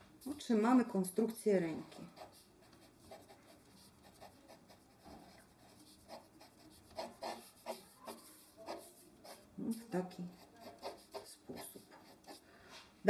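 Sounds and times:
pencil drawing on paper: 0:02.0 - 0:12.4.

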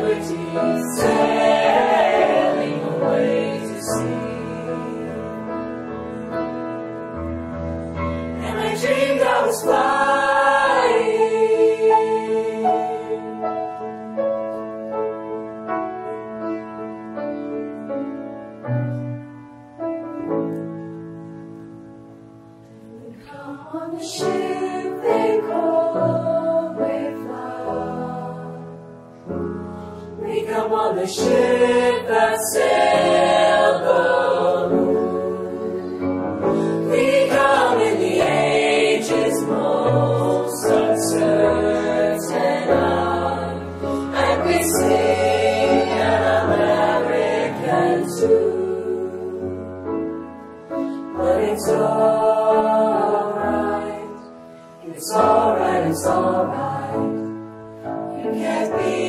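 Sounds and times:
vocal jazz ensemble singing: 0:00.0 - 0:06.6, 0:08.3 - 0:14.2, 0:22.8 - 0:50.1, 0:50.7 - 0:59.0
piano accompaniment: 0:00.0 - 0:59.0.

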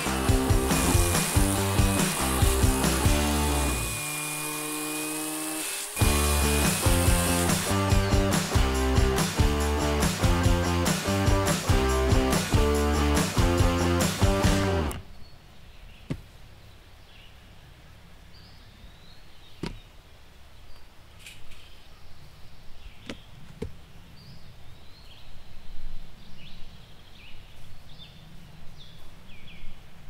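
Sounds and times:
small birds chirping: 0:14.9 - 0:30.0.

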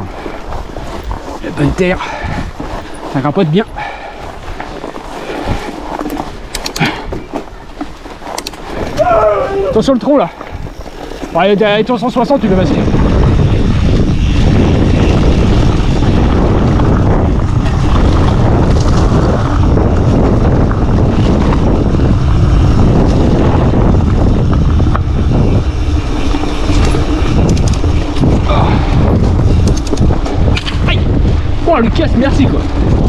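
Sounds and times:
wind and trail rumble: 0:00.0 - 0:33.0
bike clicks and knocks: 0:04.5 - 0:09.1, 0:14.2 - 0:31.4.

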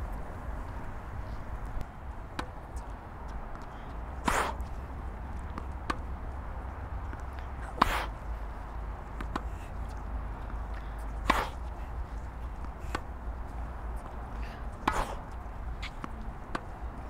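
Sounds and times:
steady low rumble: 0:00.0 - 0:17.0
tennis ball hit by racquet: 0:02.4 - 0:02.6, 0:03.5 - 0:04.7, 0:05.5 - 0:06.1, 0:07.1 - 0:08.2, 0:09.2 - 0:09.5, 0:11.2 - 0:11.7, 0:12.6 - 0:13.1, 0:14.8 - 0:16.7.

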